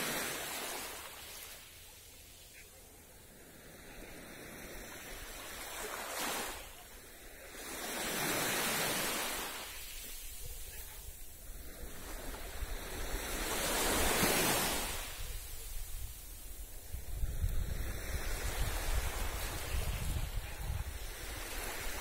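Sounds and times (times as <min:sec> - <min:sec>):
small waves breaking on beach: 0:00.0 - 0:22.0.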